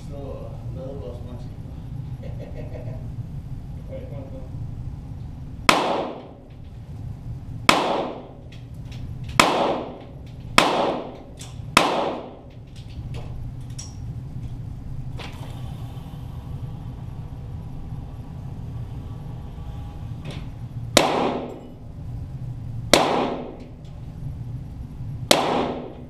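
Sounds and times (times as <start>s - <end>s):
steady low hum: 0.0s - 26.0s
pistol shots echoing: 5.7s - 6.4s, 7.7s - 8.4s, 9.4s - 12.5s, 21.0s - 21.7s, 22.9s - 23.8s, 25.3s - 26.0s.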